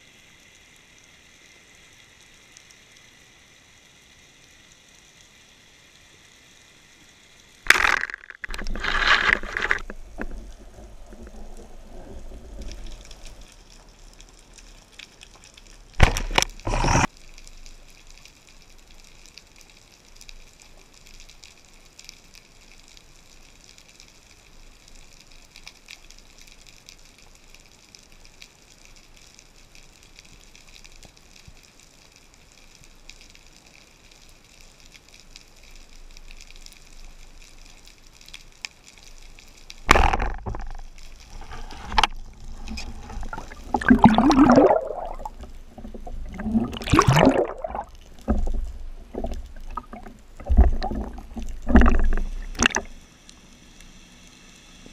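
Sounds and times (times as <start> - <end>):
faint steady hiss: 0.0 - 54.9
water rushing and gurgling: 7.6 - 14.5, 15.9 - 17.1, 39.8 - 53.1.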